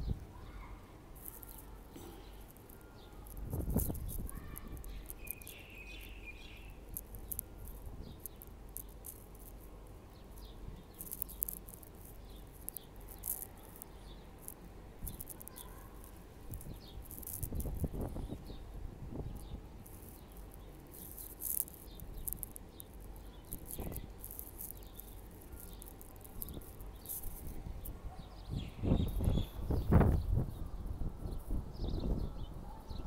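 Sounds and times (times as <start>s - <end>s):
high-pitched ticks: 1.2s - 18.5s, 19.3s - 27.9s.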